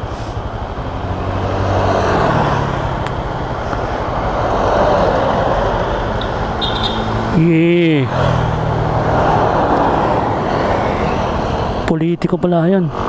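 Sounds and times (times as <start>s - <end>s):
motorcycle engine running: 0.0s - 4.3s, 5.6s - 9.0s
wind and road noise: 0.0s - 13.0s.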